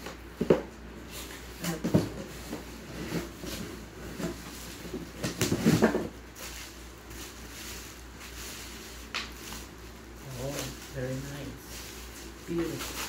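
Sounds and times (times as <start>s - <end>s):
plastic wrapping crinkling: 3.2s - 13.0s.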